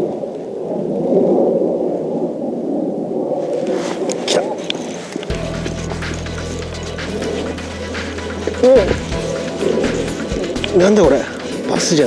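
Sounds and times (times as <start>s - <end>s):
low droning bass note: 5.3s - 11.5s.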